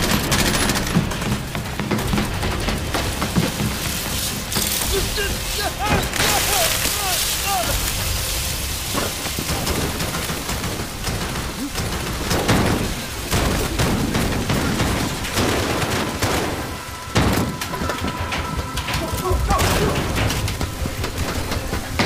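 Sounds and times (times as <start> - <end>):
guns firing in volleys: 0.0 - 22.0
shots hitting metal pipes: 0.0 - 22.0
loud blasts: 2.0 - 22.0.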